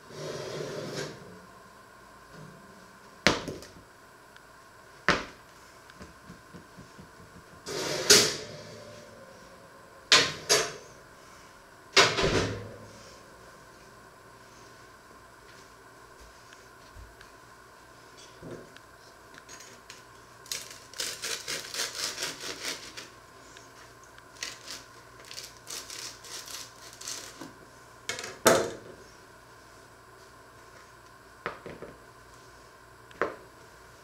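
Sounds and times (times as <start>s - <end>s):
knife sawing through crusty bread: 20.9s - 23.1s.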